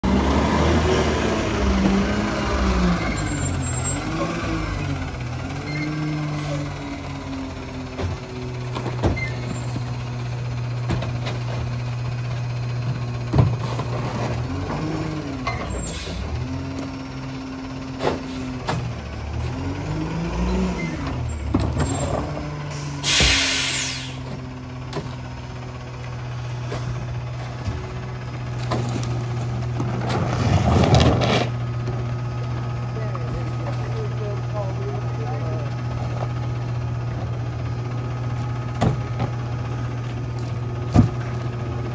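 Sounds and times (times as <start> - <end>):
garbage truck diesel engine revving: 0.0 - 41.9
air brake hiss: 22.7 - 24.2.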